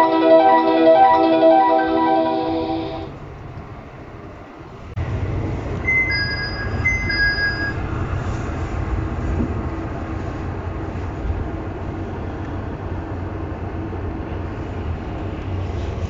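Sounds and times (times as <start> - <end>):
two-note electronic chime: 0.0 - 3.1
diesel railcar engine rumble: 0.0 - 16.0.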